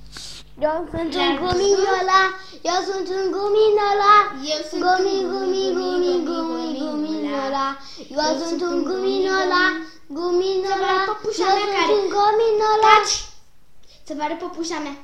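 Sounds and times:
child singing long notes: 0:00.6 - 0:13.2.

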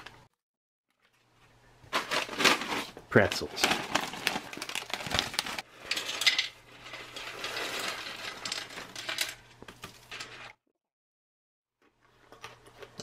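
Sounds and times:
foil pouch crinkling: 0:03.2 - 0:05.6
pretzels clattering on metal tray: 0:05.5 - 0:10.6.

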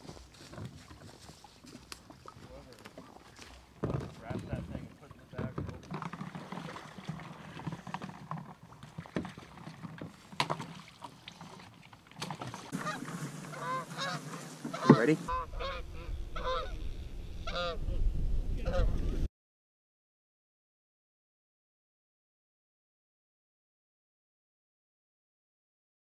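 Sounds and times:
water sounds: 0:00.0 - 0:16.7
paddle knocks: 0:03.8 - 0:15.3
geese honking: 0:12.7 - 0:17.8, 0:18.6 - 0:19.0
low rumble: 0:15.3 - 0:19.3.

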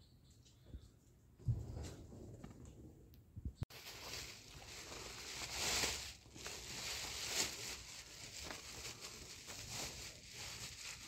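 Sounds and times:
plastic sheeting rustling: 0:03.7 - 0:11.0.

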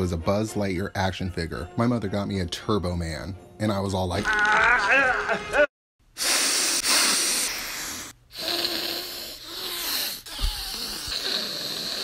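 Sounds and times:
person sniffing: 0:06.1 - 0:12.0.

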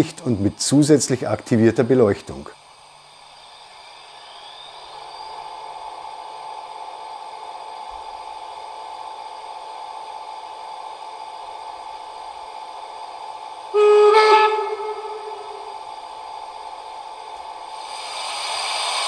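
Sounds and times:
model steam locomotive running sound: 0:00.0 - 0:19.0
steam whistle blast: 0:13.7 - 0:16.3.

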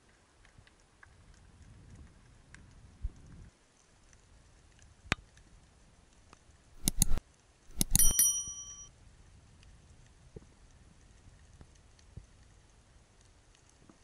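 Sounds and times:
mouse clicks: 0:06.8 - 0:08.2
sharp click: 0:06.8 - 0:08.9
bell ding: 0:07.8 - 0:08.9.

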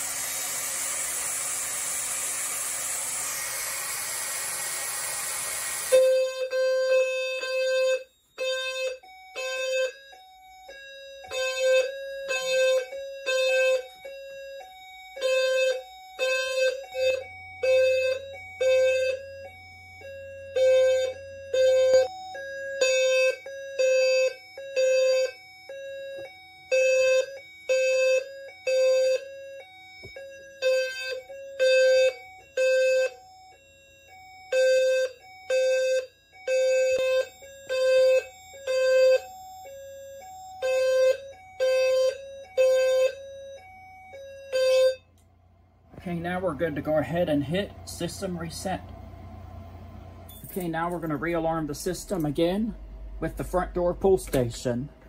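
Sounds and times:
low-pitched fire alarm beeps: 0:05.9 - 0:45.2.

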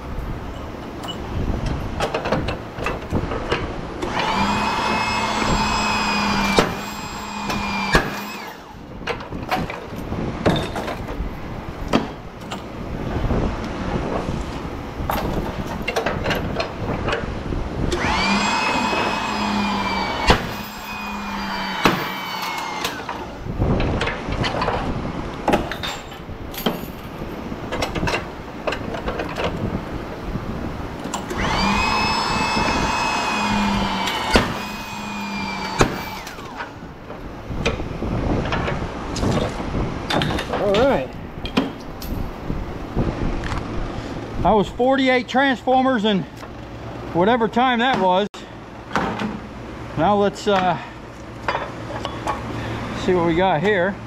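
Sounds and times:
power tool motor spinning: 0:04.0 - 0:08.8, 0:17.8 - 0:23.5, 0:31.2 - 0:36.8
metal clanks and knocks: 0:09.0 - 0:11.2, 0:21.8 - 0:29.6.

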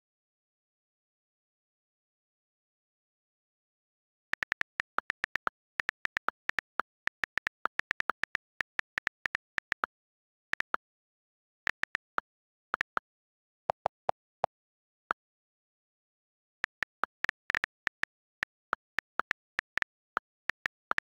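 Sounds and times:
on-screen keyboard clicks: 0:04.3 - 0:09.9, 0:11.7 - 0:13.0, 0:13.7 - 0:14.2, 0:16.6 - 0:21.0
deeper-pitched clicks: 0:04.4 - 0:09.9.

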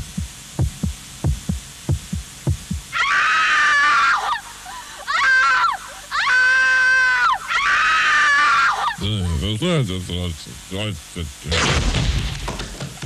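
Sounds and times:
wailing falsetto voice: 0:05.1 - 0:09.0.

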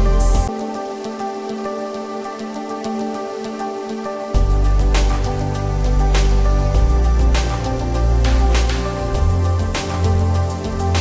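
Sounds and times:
soft new-age music: 0:00.0 - 0:11.0.

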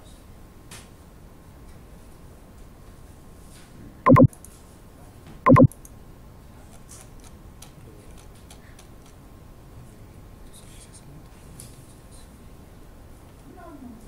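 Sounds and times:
loud buzzing beeps: 0:04.1 - 0:04.3, 0:05.5 - 0:05.7.

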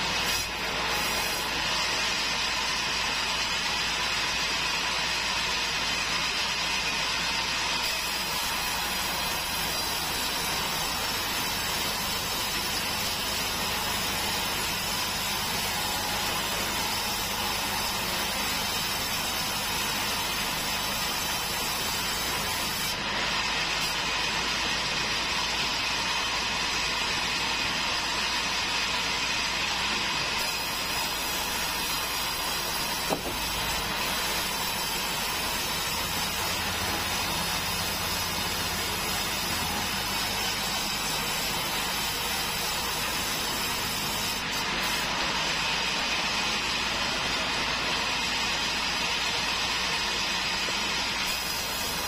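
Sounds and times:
bandsaw cutting log: 0:00.0 - 0:52.0
short sharp knock: 0:33.0 - 0:33.4.

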